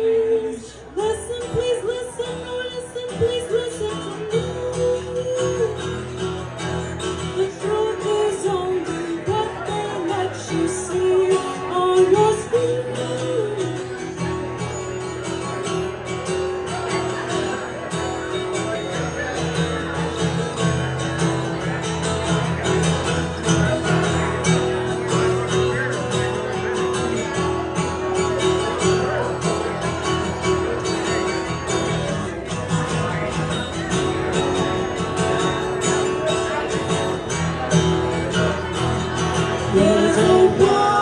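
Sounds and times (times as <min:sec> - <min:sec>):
woman singing: 0:00.0 - 0:05.8, 0:07.4 - 0:13.7, 0:39.7 - 0:41.0
acoustic guitar: 0:00.0 - 0:41.0.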